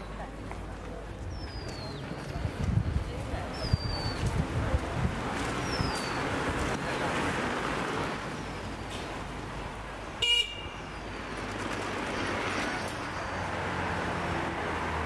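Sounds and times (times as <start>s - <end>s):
traffic hum: 0.0s - 15.0s
car horn beep: 10.2s - 10.8s.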